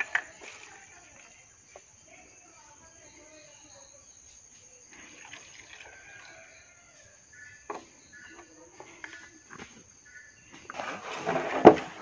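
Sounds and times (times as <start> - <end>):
faint chirps: 0.0 - 10.7
insects droning: 0.0 - 12.0.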